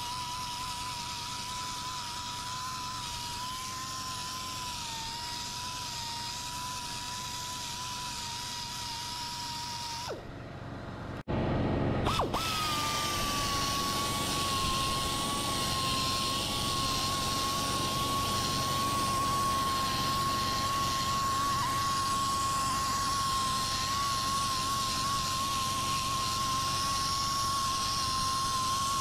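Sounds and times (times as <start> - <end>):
air sander whining: 0.0 - 29.0
air hiss: 12.2 - 29.0.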